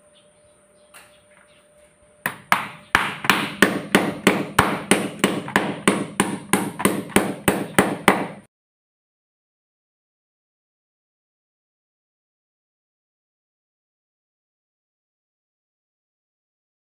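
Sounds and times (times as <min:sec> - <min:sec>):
hammer striking wooden board: 0:02.3 - 0:08.5.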